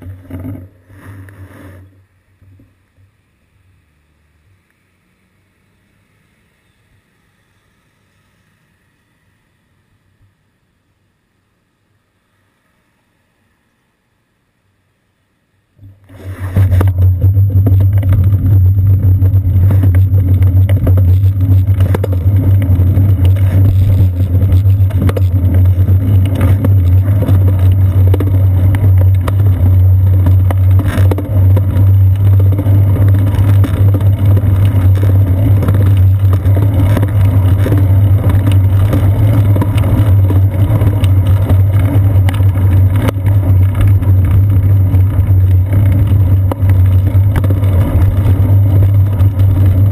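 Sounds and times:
low hum: 0.0s - 49.9s
wind and road rumble: 15.8s - 49.9s.

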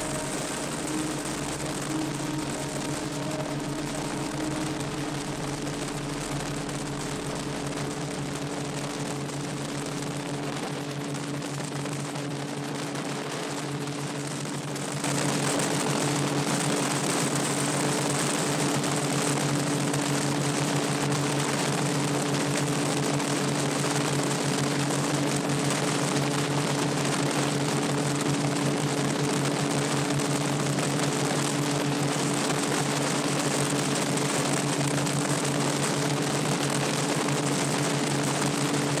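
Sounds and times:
aircraft engine droning: 0.0s - 11.5s.

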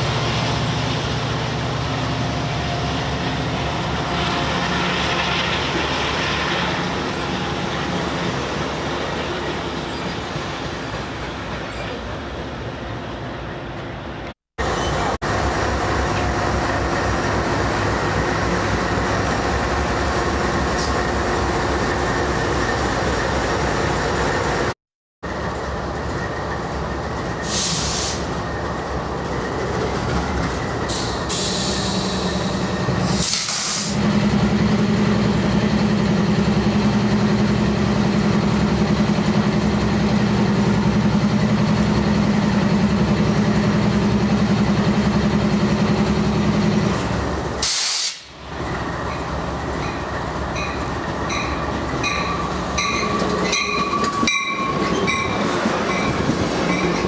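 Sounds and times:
diesel locomotives rumbling: 0.0s - 57.0s
passenger train rolling in: 0.0s - 57.0s.

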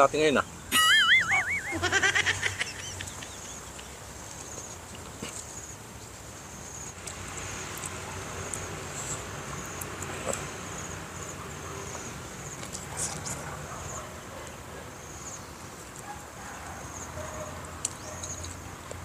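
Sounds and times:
rapid trill: 0.7s - 2.4s
wavering animal call: 0.8s - 2.8s.

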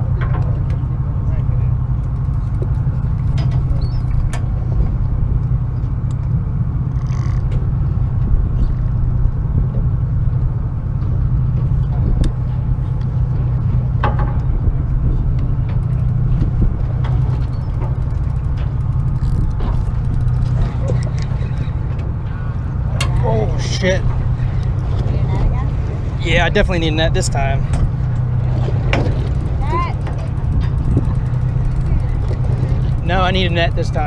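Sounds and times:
boat engine idling: 0.0s - 34.0s
light clicks and creaks: 2.0s - 9.0s, 11.0s - 25.8s, 26.4s - 34.0s.

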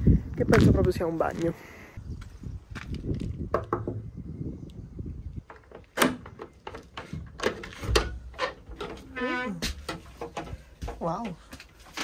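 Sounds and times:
door knocking in frame: 3.5s - 4.0s.

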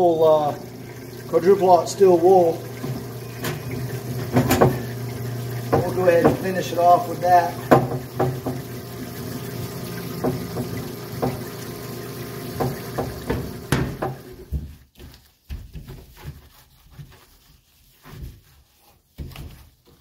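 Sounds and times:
solvent pouring from hose: 0.0s - 14.5s
pump running: 0.0s - 14.6s
sharp knocks: 7.7s - 8.7s, 10.2s - 11.5s, 12.6s - 14.3s
cloth wiping metal cover: 15.0s - 20.0s.

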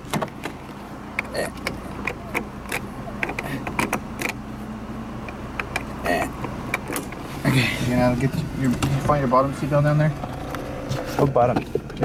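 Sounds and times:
seatbelt buckles clicking and rattling: 0.0s - 4.4s, 5.2s - 7.2s
car engine idling: 0.0s - 12.0s.

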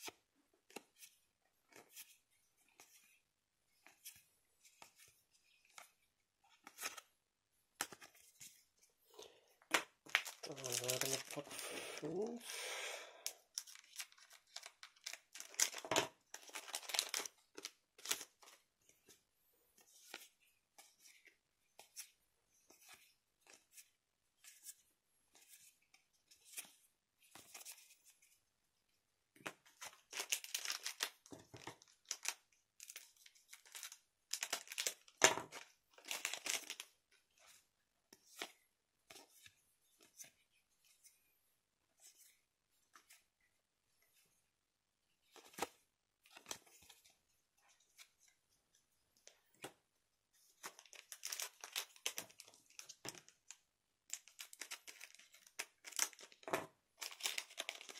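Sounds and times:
plastic wrapper crinkling: 10.0s - 11.5s, 13.5s - 18.4s, 30.0s - 35.2s, 36.0s - 36.9s, 50.7s - 57.9s.

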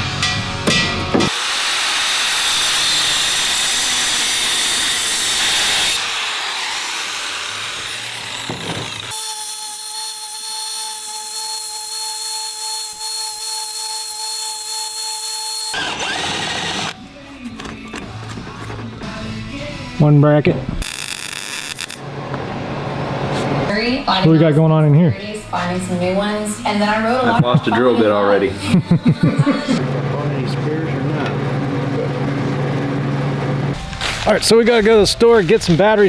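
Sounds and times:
angle grinder cutting metal: 1.3s - 17.0s, 20.8s - 22.0s
belt grinder whining: 1.3s - 17.0s, 20.8s - 22.0s.

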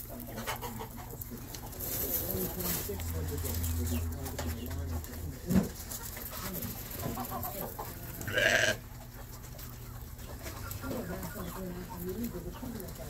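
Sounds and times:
farmyard animals calling: 0.0s - 13.0s.

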